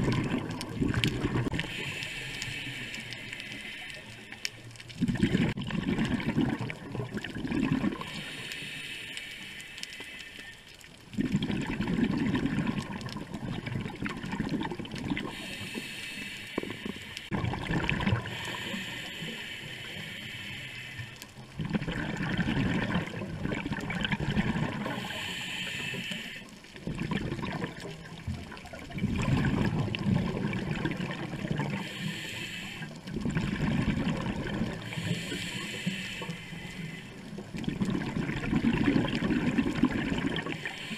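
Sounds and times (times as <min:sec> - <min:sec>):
exhaled bubbles rushing: 0:00.0 - 0:01.8, 0:04.9 - 0:08.2, 0:11.1 - 0:15.4, 0:17.3 - 0:18.6, 0:21.6 - 0:25.0, 0:26.8 - 0:31.8, 0:33.0 - 0:35.1, 0:37.3 - 0:40.7
diver breathing through regulator: 0:01.4 - 0:04.7, 0:07.8 - 0:10.8, 0:15.2 - 0:17.4, 0:18.2 - 0:21.3, 0:24.8 - 0:26.6, 0:31.6 - 0:33.1, 0:34.7 - 0:37.4, 0:40.4 - 0:40.9.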